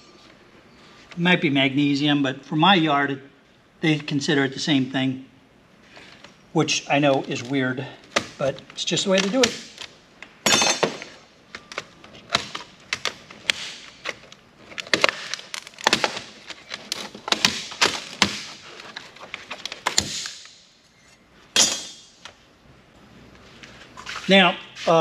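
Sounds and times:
parts clattering: 0:07.0 - 0:22.4
plastic and metal parts clicking: 0:11.5 - 0:20.1.

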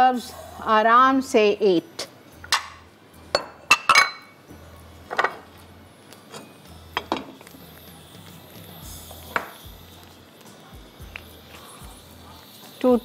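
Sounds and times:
dishes and utensils clinking: 0:02.4 - 0:04.4, 0:05.1 - 0:05.5, 0:06.3 - 0:07.5.

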